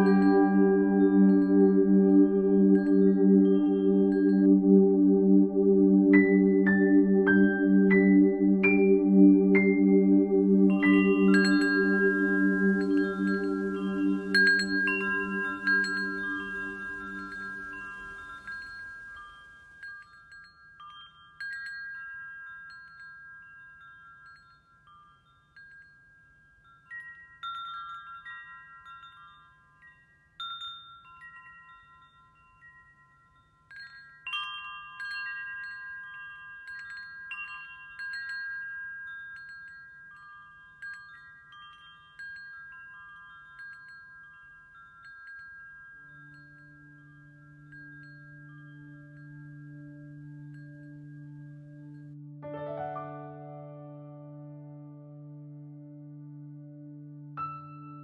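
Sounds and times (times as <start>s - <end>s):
metal wind chime ringing: 10.5s - 52.2s.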